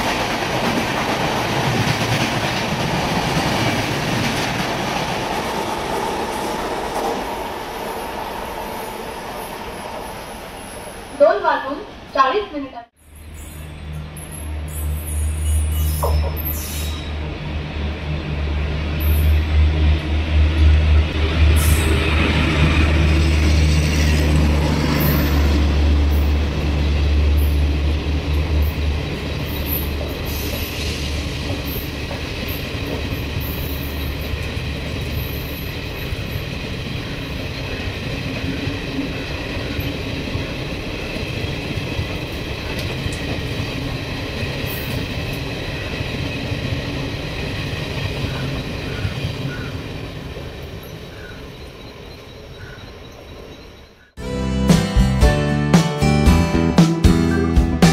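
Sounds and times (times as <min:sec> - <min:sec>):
train wheels clattering: 0:00.0 - 0:07.5
train coaches rumbling: 0:00.0 - 0:54.2
electric locomotive humming: 0:00.0 - 0:57.9.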